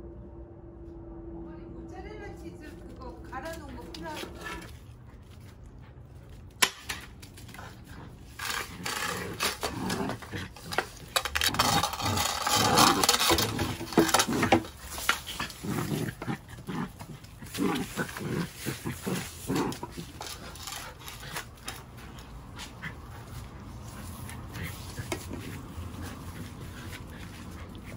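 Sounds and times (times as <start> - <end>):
broom bristles scraping concrete: 2.6 - 27.9
puppy growling: 7.4 - 27.9.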